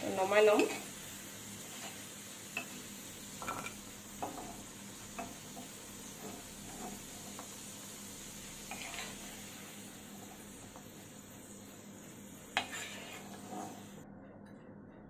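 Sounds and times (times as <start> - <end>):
hot oil sizzling in a wok: 0.0 - 14.0
metal spoon scraping a pan: 1.6 - 7.6, 8.4 - 11.0, 12.5 - 14.0.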